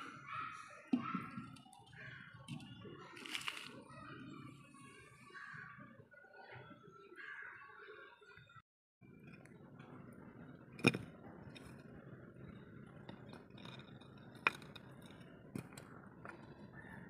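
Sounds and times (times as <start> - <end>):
wooden blocks knocking together: 10.8 - 11.8, 13.1 - 16.6.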